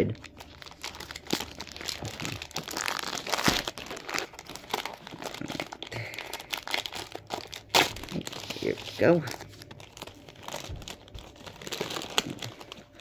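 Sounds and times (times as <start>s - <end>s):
candy wrapper crinkling: 0.0s - 13.0s.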